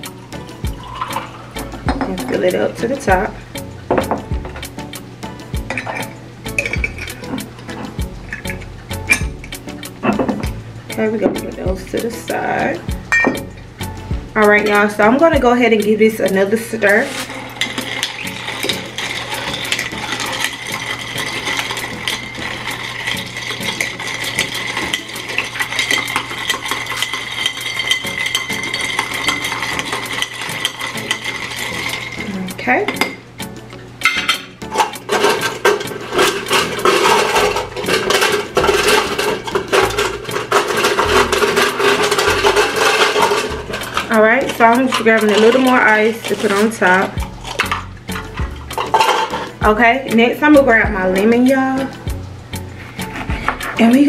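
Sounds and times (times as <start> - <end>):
ice cubes clinking in glass: 0.7 - 1.4, 17.1 - 32.3, 34.0 - 49.6.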